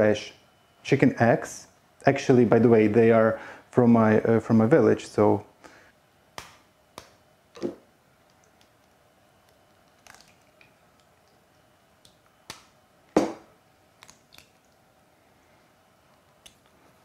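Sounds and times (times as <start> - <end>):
eggshells cracking: 9.4 - 11.4, 14.0 - 14.8.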